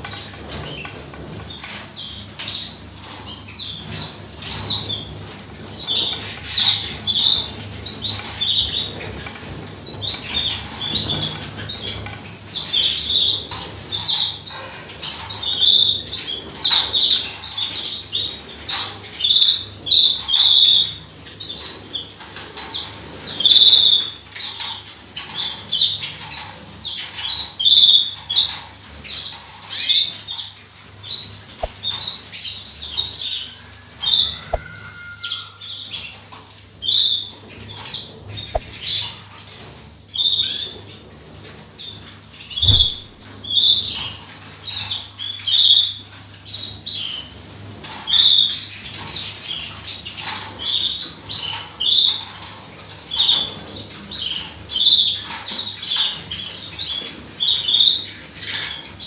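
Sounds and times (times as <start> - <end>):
canaries chirping: 23.2 - 24.7, 31.1 - 36.1, 42.6 - 44.0.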